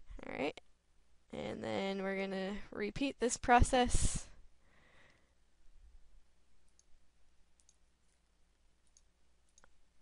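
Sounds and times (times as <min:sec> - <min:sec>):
computer mouse clicks: 0:06.6 - 0:07.0, 0:07.6 - 0:09.8.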